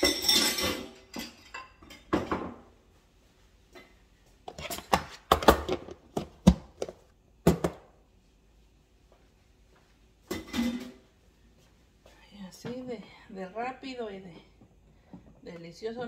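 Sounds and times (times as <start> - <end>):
dishes and utensils clattering: 0.0 - 2.7, 10.3 - 11.0.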